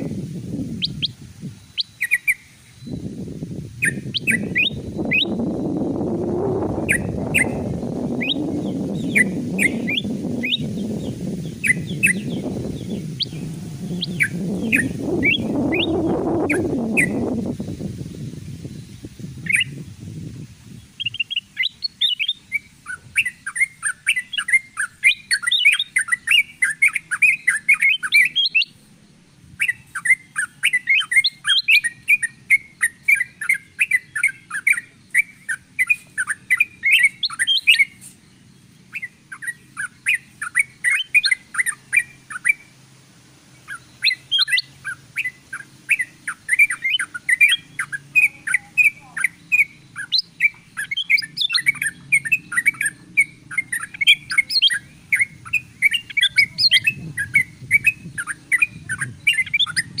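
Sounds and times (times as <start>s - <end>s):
bulbul chattering chirps: 0.0s - 60.0s.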